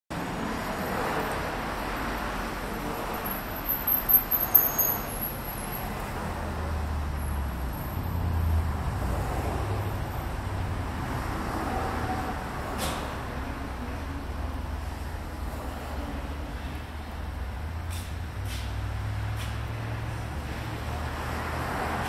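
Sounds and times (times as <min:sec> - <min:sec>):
lathe mechanical hum: 0:05.0 - 0:22.0.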